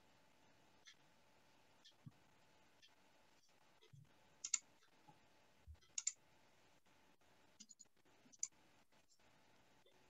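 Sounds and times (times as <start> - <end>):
sharp clicks: 5.9 - 6.2.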